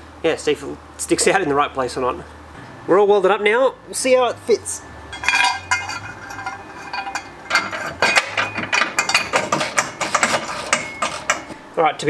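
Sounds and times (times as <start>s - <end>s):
metal arm clinking and knocking: 5.1s - 11.6s.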